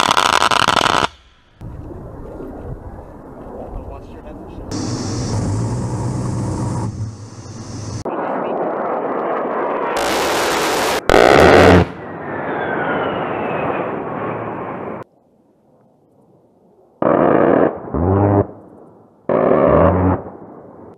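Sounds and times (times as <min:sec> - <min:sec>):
jet engine noise: 0:01.6 - 0:15.0
falling whine: 0:04.7 - 0:08.1
rotary cannon firing bursts: 0:10.0 - 0:12.0.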